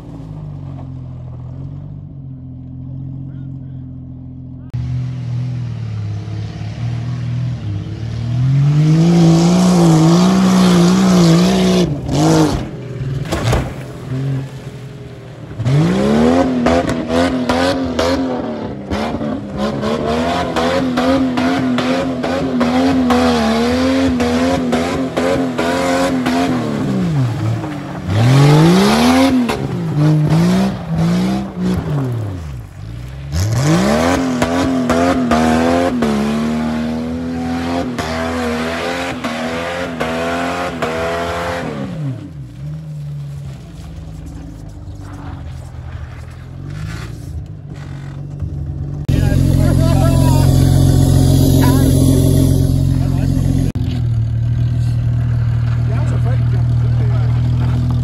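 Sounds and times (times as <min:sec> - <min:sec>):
car engine revving hard: 0:08.2 - 0:12.8, 0:15.6 - 0:27.5, 0:28.1 - 0:32.3, 0:33.3 - 0:42.2, 0:49.0 - 0:53.8.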